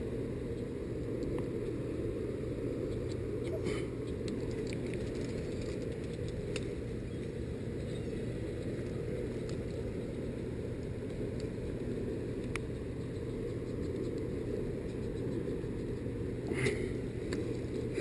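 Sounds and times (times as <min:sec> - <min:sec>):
low hum: 0:00.0 - 0:18.0
faint clicks: 0:04.1 - 0:11.6, 0:12.4 - 0:14.3.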